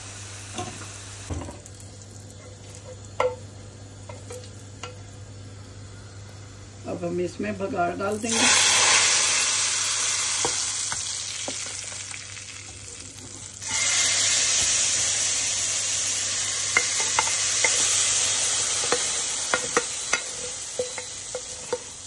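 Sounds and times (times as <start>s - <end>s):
hot oil sizzling: 0.0s - 22.0s
metal spoon clinking on pot: 18.8s - 21.9s.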